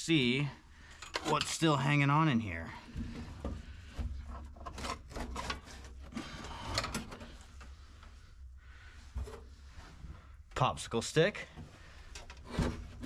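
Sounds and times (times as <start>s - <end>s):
dashboard creaking and knocking: 11.6s - 13.0s.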